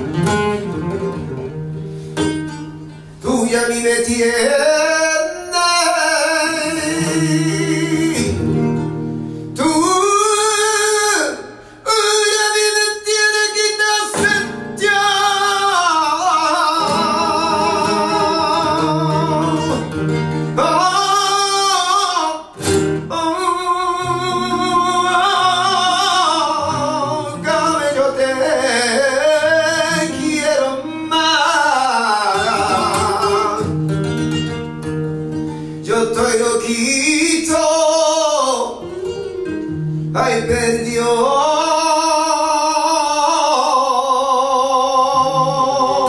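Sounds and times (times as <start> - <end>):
flamenco guitar: 0.0 - 46.0
man singing ornamented vocal lines: 3.2 - 8.8, 9.5 - 33.8, 35.8 - 46.0.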